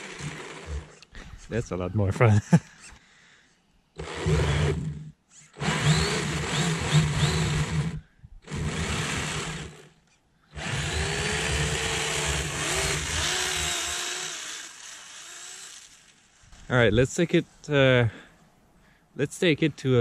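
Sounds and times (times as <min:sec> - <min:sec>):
rc snowmobile motor bursts: 0:00.0 - 0:01.2, 0:04.0 - 0:10.0, 0:10.6 - 0:16.8
motor whine: 0:04.0 - 0:09.9, 0:10.6 - 0:16.5.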